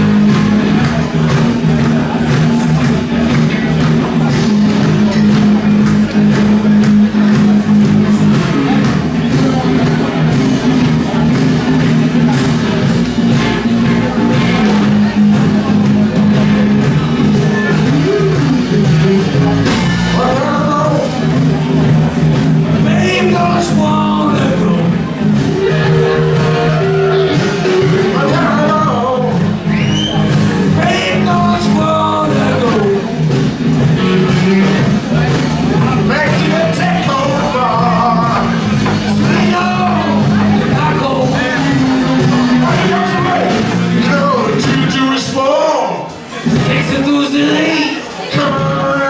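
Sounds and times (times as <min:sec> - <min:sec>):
electric guitar lead bending: 0:00.0 - 0:45.4
low bass line: 0:00.0 - 0:45.6
live rock band playing: 0:00.0 - 0:49.0
man singing and shouting: 0:14.4 - 0:21.4, 0:22.8 - 0:33.4, 0:35.8 - 0:49.0.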